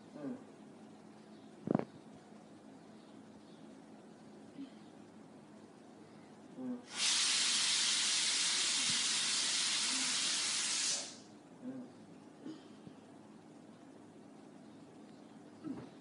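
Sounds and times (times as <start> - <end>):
child hissing: 6.8 - 11.2.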